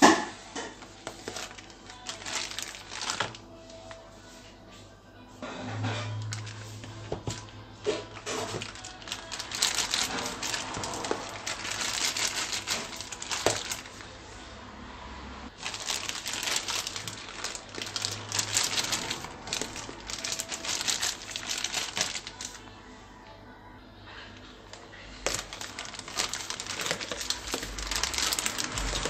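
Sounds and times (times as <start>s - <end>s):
plastic bags crinkling: 0.8s - 4.1s, 6.2s - 14.1s, 15.5s - 22.6s, 25.1s - 29.0s.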